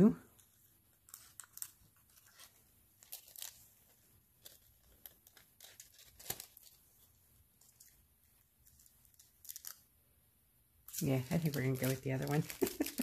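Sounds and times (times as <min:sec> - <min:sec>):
foil crinkling: 0:01.0 - 0:08.0, 0:08.6 - 0:09.8, 0:10.9 - 0:13.0.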